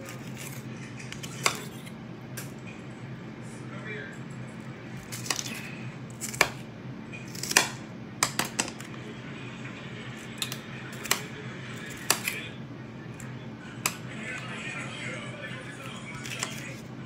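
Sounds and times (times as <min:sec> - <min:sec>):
low steady hum: 0:00.0 - 0:17.0
knife chopping on cutting board: 0:01.2 - 0:02.5, 0:06.2 - 0:06.7, 0:07.3 - 0:08.9, 0:10.4 - 0:11.3, 0:11.9 - 0:12.4.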